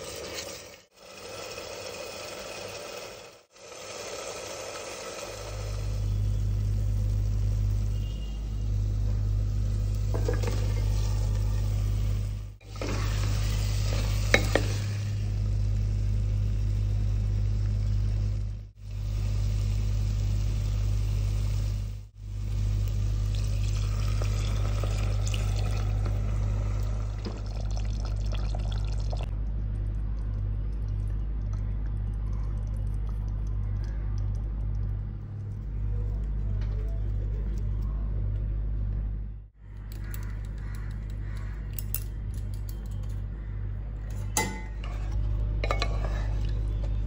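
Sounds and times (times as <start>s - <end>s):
paste sizzling in pot: 0.0s - 6.4s, 9.5s - 15.4s
steady low hum: 5.4s - 47.0s
gravy bubbling: 22.4s - 37.8s.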